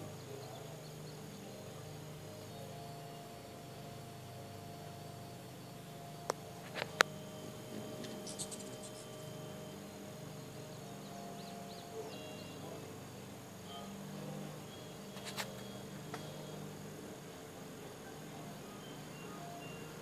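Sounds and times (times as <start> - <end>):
high insect drone: 0.0 - 20.0
hummingbird wings humming: 0.0 - 20.0
short high bird chirps: 8.0 - 9.1.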